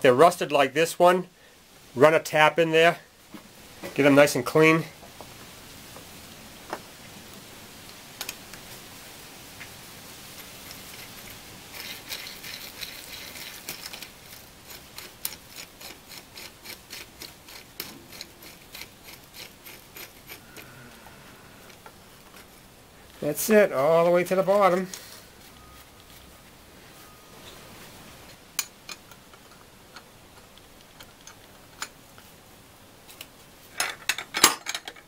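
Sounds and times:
metal scraping and ticking: 10.3s - 22.7s.

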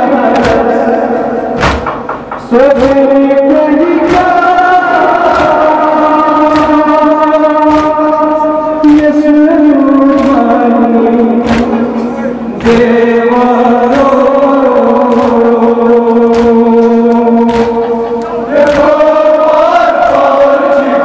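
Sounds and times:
men chanting a lament: 0.0s - 21.0s
hands slapping chests: 0.3s - 0.8s, 1.6s - 3.1s, 4.0s - 5.8s, 6.4s - 8.2s, 10.0s - 12.8s, 16.2s - 18.0s, 18.6s - 19.0s.

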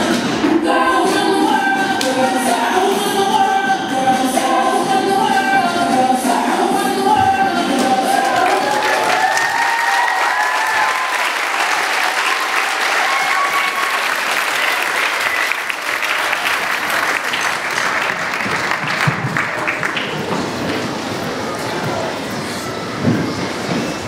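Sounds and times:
children clapping: 7.8s - 20.8s
children calling out: 12.0s - 15.9s.

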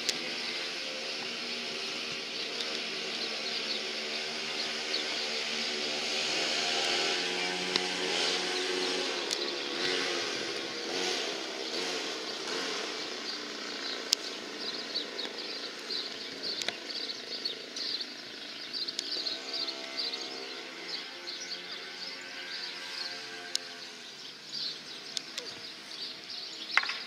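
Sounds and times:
small birds chirping: 0.0s - 27.0s
vehicle engine running: 0.0s - 27.0s
sharp clicks: 2.1s - 3.0s, 9.2s - 9.8s, 13.8s - 17.1s, 25.1s - 25.6s.

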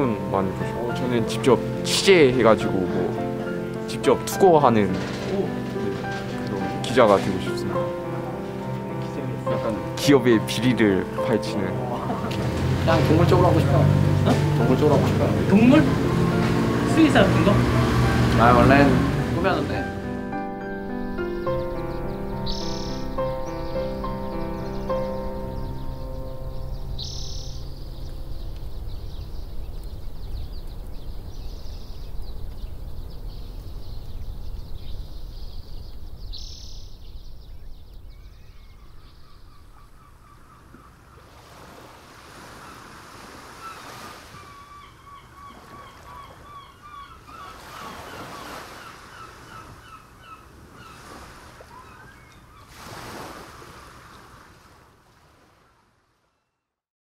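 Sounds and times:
sea surf: 0.0s - 34.6s, 41.2s - 56.2s
waves washing in: 0.0s - 36.9s, 41.1s - 56.2s
wind rumble: 0.0s - 41.1s
birds trilling: 0.0s - 54.3s.

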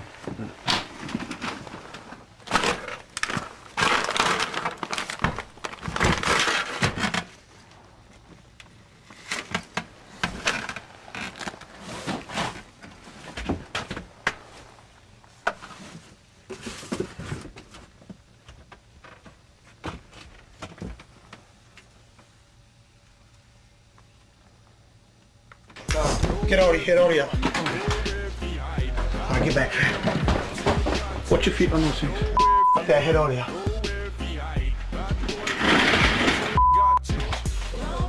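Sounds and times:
cardboard boxes being rummaged: 0.1s - 7.4s.

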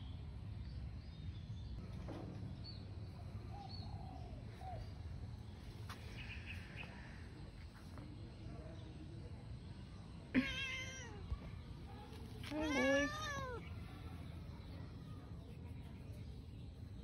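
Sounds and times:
cat meowing: 10.4s - 11.3s, 12.5s - 13.7s.

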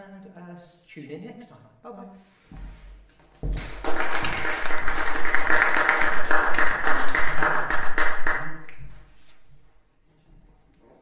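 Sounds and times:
audience applauding: 3.5s - 9.0s.

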